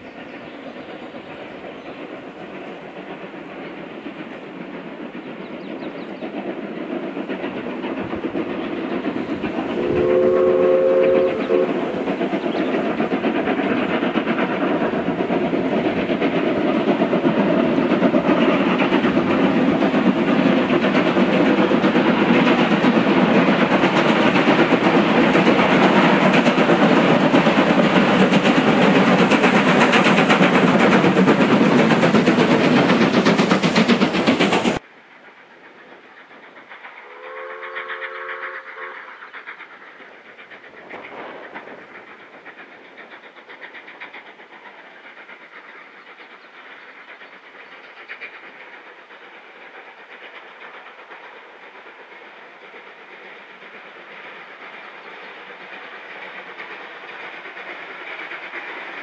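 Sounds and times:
steam locomotive exhaust beats: 0:00.0 - 0:59.0
distant steam whistle: 0:09.7 - 0:12.0, 0:37.0 - 0:39.2.

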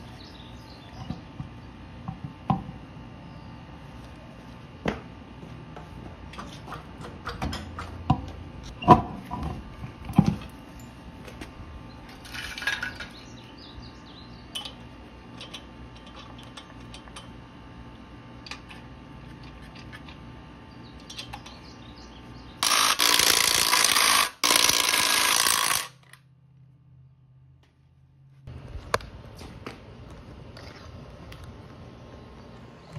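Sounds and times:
impact wrench running: 0:22.6 - 0:26.2.

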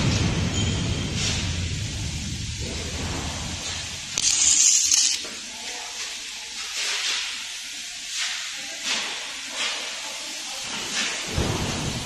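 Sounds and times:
stud welding gun arc hiss: 0:03.4 - 0:11.2.

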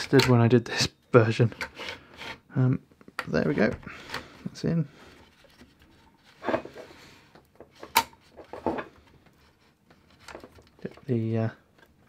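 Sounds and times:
plastic parts rubbing and scraping: 0:03.4 - 0:11.9.

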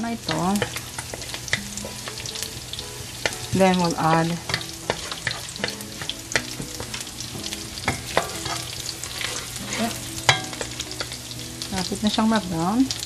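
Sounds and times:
garlic sizzling in hot oil: 0:00.0 - 0:13.0
wooden spatula scraping a pan: 0:03.2 - 0:11.2.

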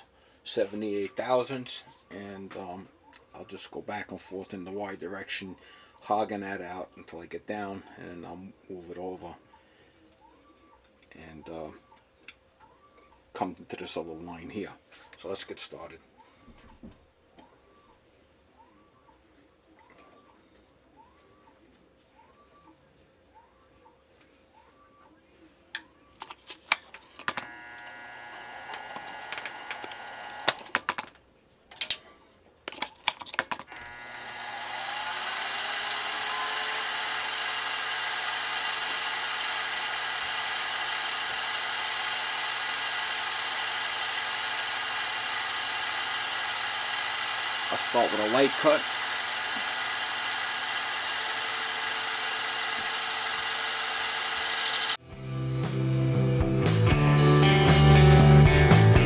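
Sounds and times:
milling machine spindle whine: 0:27.4 - 0:30.6, 0:33.7 - 0:55.0
rock music with guitar and drums: 0:55.0 - 0:59.0.

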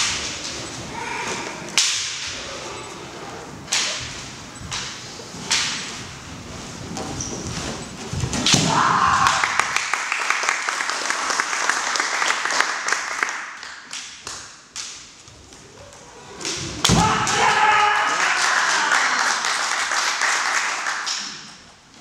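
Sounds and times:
spectators clapping: 0:09.1 - 0:14.5, 0:18.0 - 0:21.5.

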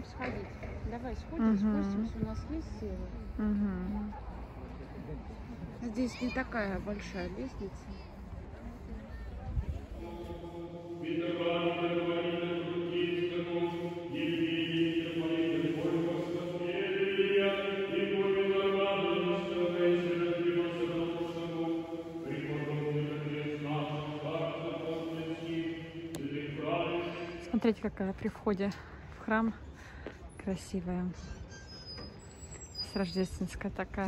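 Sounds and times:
church chanting: 0:09.9 - 0:28.0.

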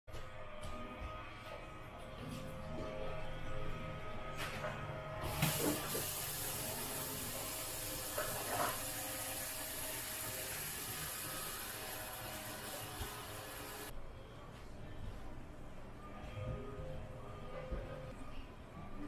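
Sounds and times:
faucet water running into tub: 0:05.2 - 0:13.9.

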